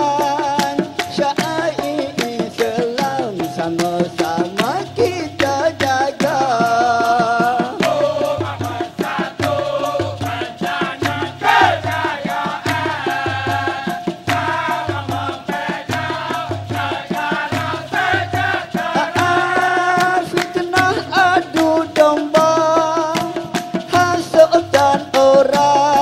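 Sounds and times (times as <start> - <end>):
percussion beat: 0.0 - 26.0
rhythmic hand clapping: 0.0 - 26.0
chorus chanting: 7.5 - 21.6.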